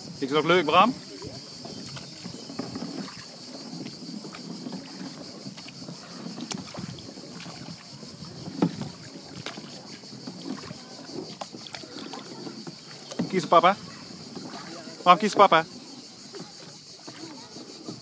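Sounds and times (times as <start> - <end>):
paddle knocking against hull: 0.0 - 18.0
paddle splashing in water: 0.0 - 18.0.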